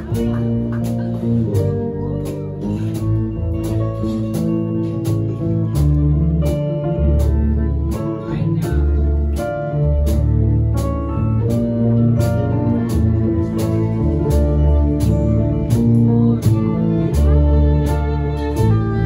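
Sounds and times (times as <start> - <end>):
drum beat: 0.0 - 6.6
bowed strings: 0.0 - 19.0
deep bass line: 0.0 - 19.0
electric guitar: 0.0 - 19.0
hip hop band playing: 0.0 - 19.0.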